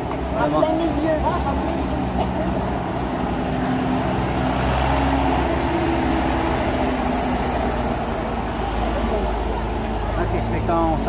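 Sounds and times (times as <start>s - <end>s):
faint voices: 6.8s - 11.0s.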